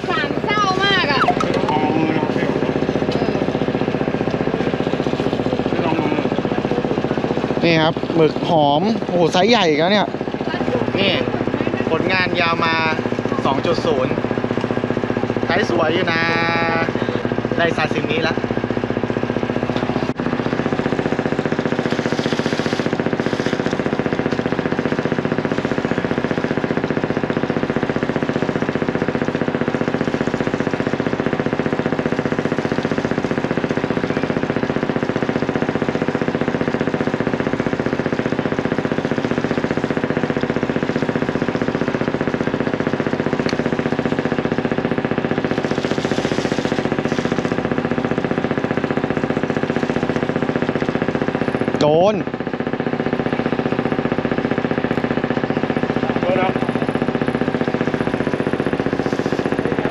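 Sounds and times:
boat engine idling: 0.0s - 59.9s.

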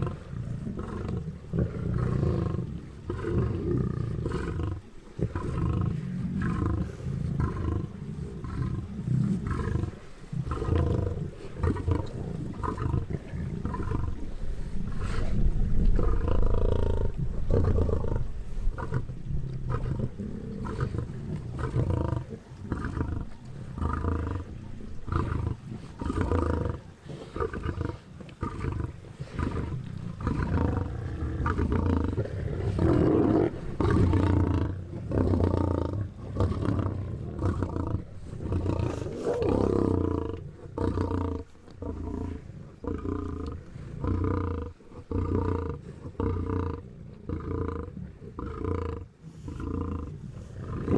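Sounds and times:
lions growling: 0.0s - 50.9s.

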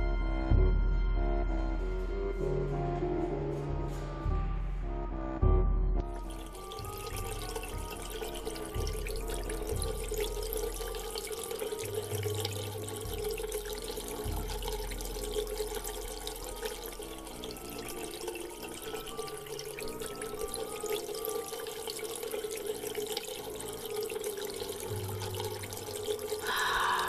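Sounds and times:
running water splashing: 6.1s - 27.0s.

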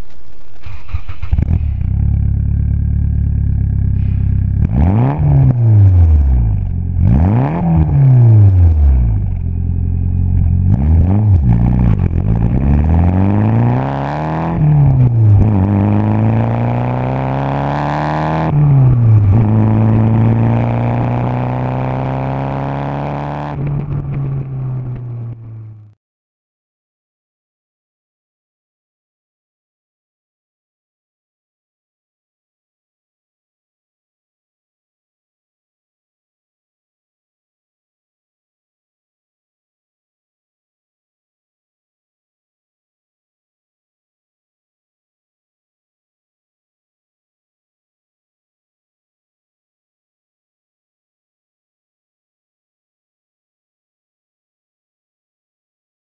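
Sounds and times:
car engine revving and accelerating: 0.1s - 25.6s.

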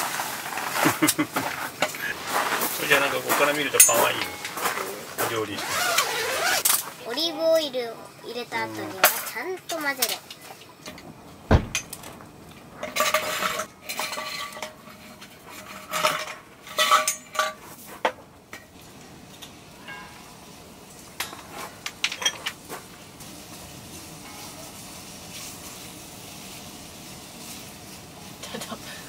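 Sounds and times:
kitchenware clinking and clattering: 0.6s - 5.4s, 8.9s - 12.2s, 12.8s - 18.8s, 21.2s - 22.9s
heavy dull thump: 11.5s - 11.9s.

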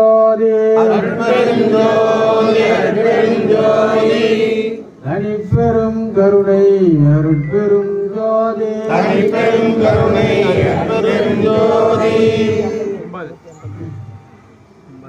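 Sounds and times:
men chanting together: 0.6s - 5.9s, 8.7s - 13.0s.

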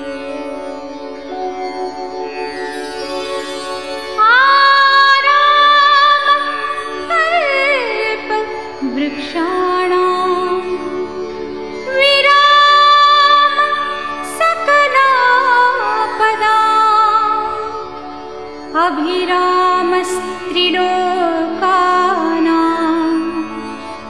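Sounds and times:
devotional music melodic phrases: 0.0s - 24.0s.

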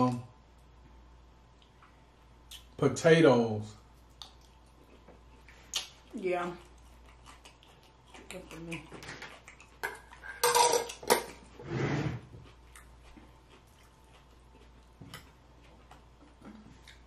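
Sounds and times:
cutlery clinking on dishes: 9.8s - 11.4s.

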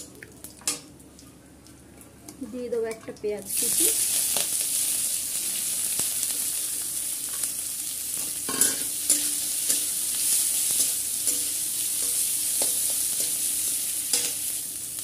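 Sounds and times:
onions sizzling in hot oil: 3.4s - 15.0s.

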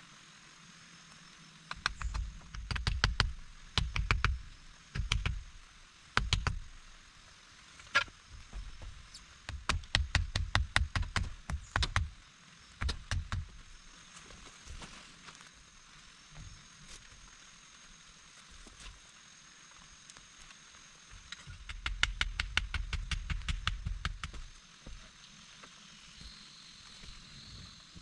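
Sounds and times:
sharp knocks and dull thumps: 1.7s - 5.6s, 6.2s - 6.8s, 7.8s - 12.2s, 12.8s - 13.7s, 16.3s - 16.6s, 21.1s - 25.8s.

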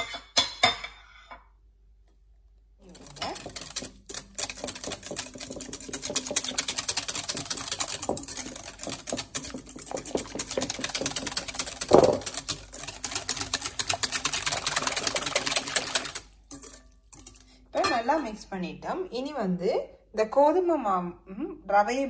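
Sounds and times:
whisk clicking against glass bowl: 2.9s - 17.4s.

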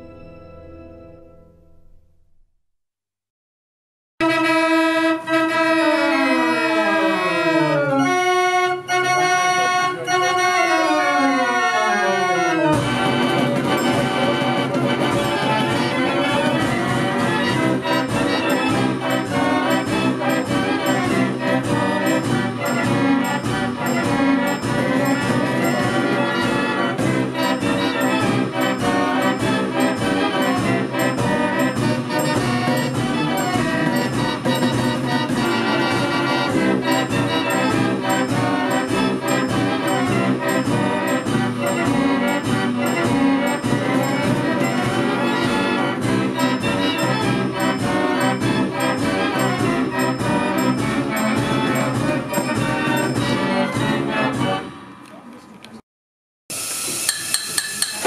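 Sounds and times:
organ-like mechanical band: 4.2s - 55.0s
chiming held notes: 18.0s - 35.0s.

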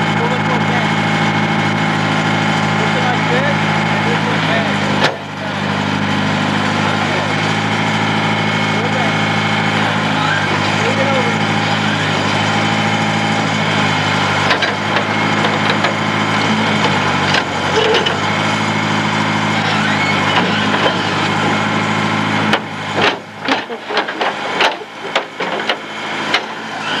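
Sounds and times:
backhoe engine idling: 0.0s - 27.0s
sharp clicks and knocks: 14.4s - 16.0s, 22.5s - 26.5s.

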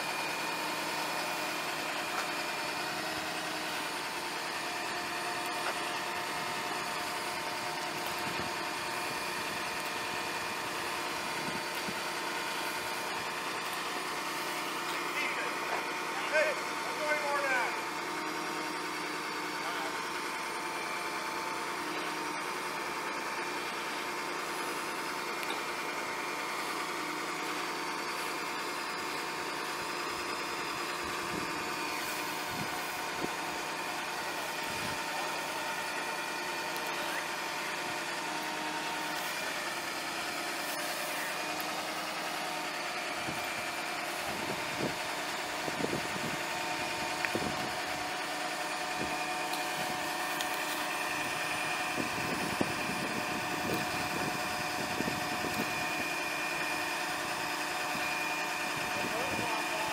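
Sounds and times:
diesel engine idling: 0.0s - 59.9s
thin whine: 30.5s - 35.6s.

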